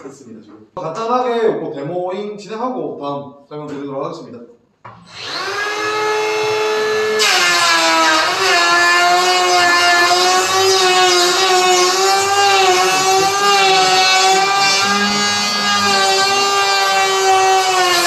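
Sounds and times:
electric planer whine: 5.0 - 18.0
planer shaving wood: 5.1 - 18.0.

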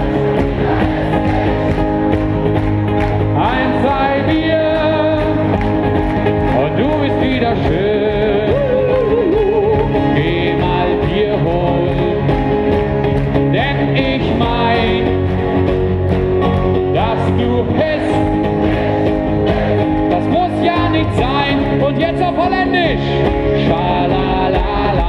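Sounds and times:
acoustic guitar: 0.0 - 25.0
keyboard: 0.0 - 25.0
person singing: 3.3 - 5.5, 6.5 - 12.4, 13.5 - 15.3, 20.1 - 25.0.

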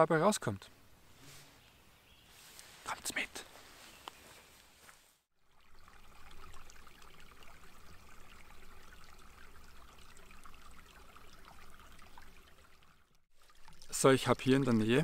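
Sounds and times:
brook trickling over stones: 5.4 - 15.0.

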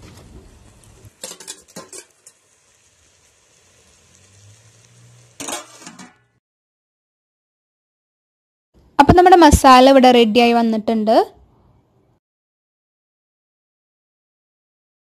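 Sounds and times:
food sizzling: 0.0 - 6.4
metal pot lid clattering: 1.2 - 2.4, 5.4 - 6.3.

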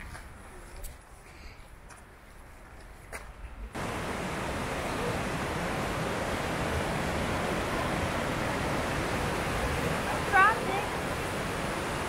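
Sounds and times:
waterfall rushing: 3.8 - 12.0.

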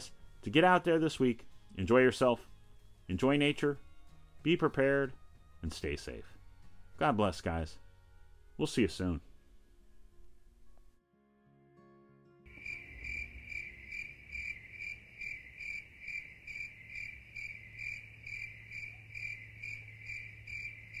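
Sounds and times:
music: 0.0 - 14.7
cricket chirping: 12.5 - 21.0.

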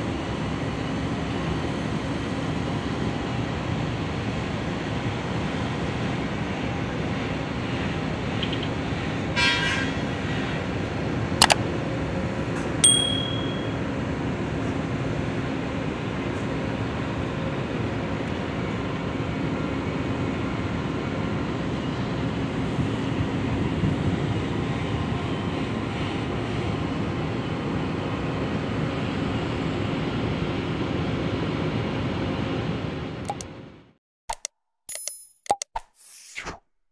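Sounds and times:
short bell-like ding: 12.8 - 13.8
sharp click: 34.3 - 36.0.

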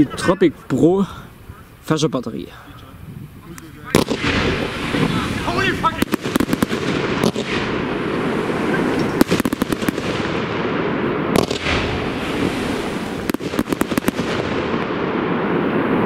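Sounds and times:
burning fireworks rushing: 0.0 - 16.0
firework battery shots: 3.9 - 16.0.

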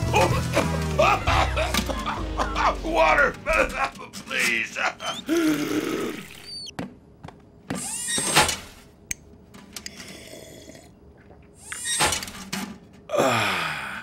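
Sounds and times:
cartoon slurping and gulping: 9.9 - 11.8.

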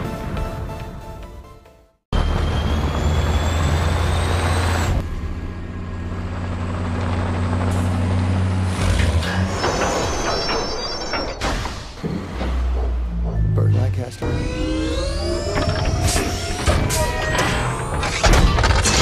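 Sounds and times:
high squeal: 2.2 - 5.0, 9.0 - 11.8, 13.6 - 18.2
diesel truck engines running: 2.2 - 10.6.

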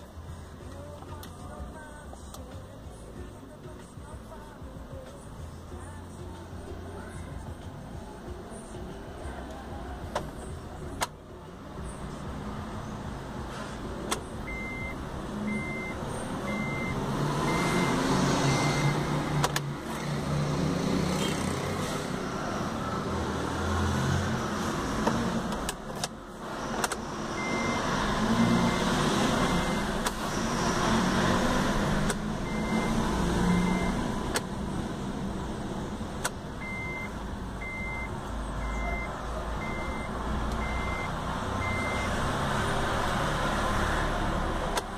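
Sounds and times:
vehicle engine rumbling: 0.0 - 44.9
short high beeps: 14.5 - 19.1, 32.5 - 34.0, 36.6 - 42.1.

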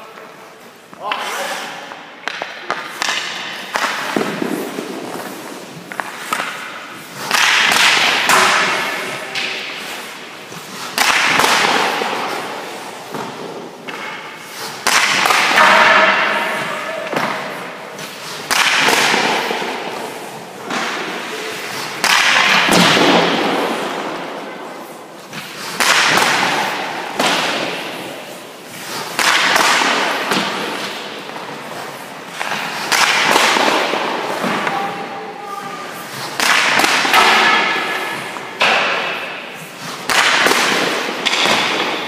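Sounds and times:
hockey stick cracking puck: 2.2 - 35.2, 35.9 - 42.0.

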